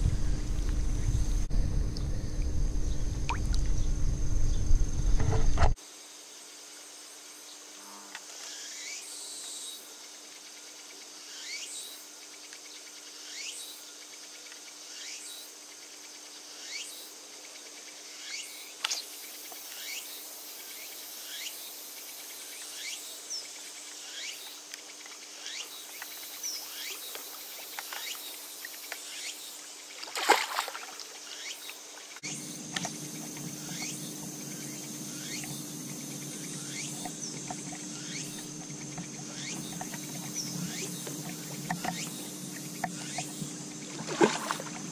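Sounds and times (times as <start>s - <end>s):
low rumble: 0.0s - 5.8s
steady low hum: 0.0s - 5.8s, 32.2s - 44.9s.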